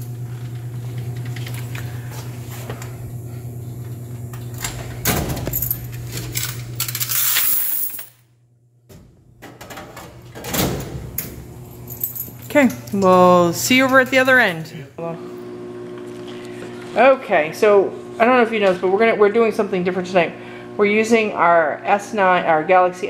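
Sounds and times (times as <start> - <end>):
low machine hum: 0.0 - 23.0
coins clinking and jingling: 5.5 - 8.2.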